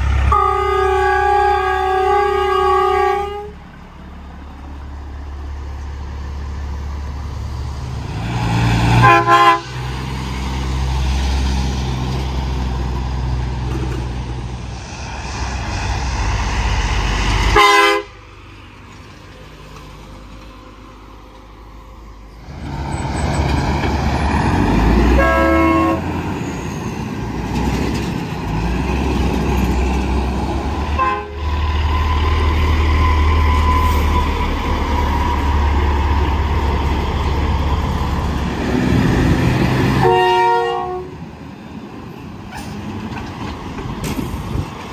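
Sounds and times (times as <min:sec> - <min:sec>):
diesel truck engines running: 0:00.0 - 0:00.9, 0:01.6 - 0:40.3, 0:40.9 - 0:44.9
truck train horn blasts: 0:00.2 - 0:03.6, 0:08.9 - 0:10.0, 0:17.5 - 0:18.2, 0:25.0 - 0:26.2, 0:30.9 - 0:31.6, 0:39.9 - 0:41.2.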